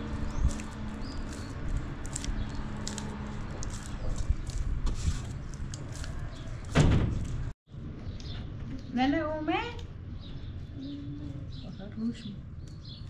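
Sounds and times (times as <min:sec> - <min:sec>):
thump: 0:06.7 - 0:07.3.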